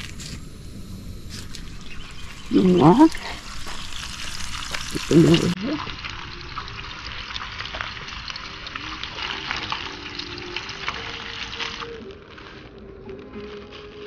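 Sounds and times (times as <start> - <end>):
bacon sizzling in a frying pan: 0.0 - 12.6.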